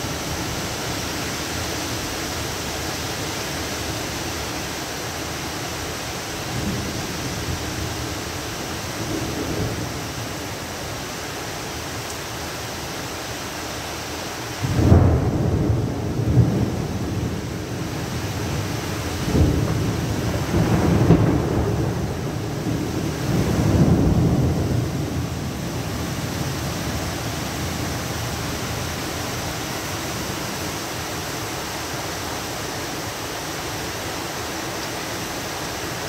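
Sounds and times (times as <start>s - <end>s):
heavy rain falling: 0.0s - 36.0s
low rumble of thunder: 8.8s - 10.5s, 14.6s - 28.9s.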